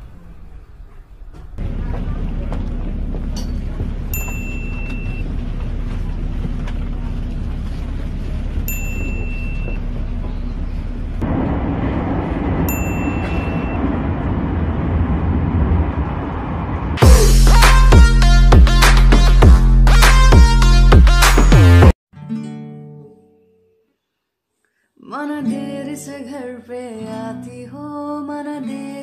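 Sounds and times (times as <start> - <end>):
train car rumbling: 0.0 - 21.8
loud music with heavy beat: 17.0 - 21.9.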